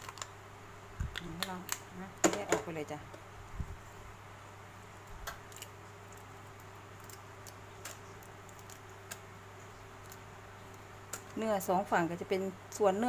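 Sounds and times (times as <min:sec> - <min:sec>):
crab shell clicks and cracks: 0:00.0 - 0:00.4, 0:01.1 - 0:01.9, 0:05.2 - 0:09.3, 0:10.0 - 0:11.4.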